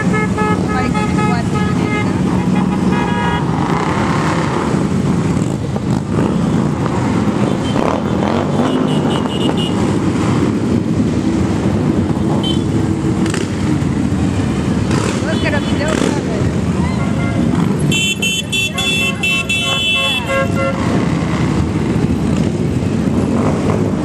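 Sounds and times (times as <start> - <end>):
motorcycle engine revving: 2.2 - 16.7
motorcycles rumbling past: 2.2 - 17.9, 20.4 - 24.0.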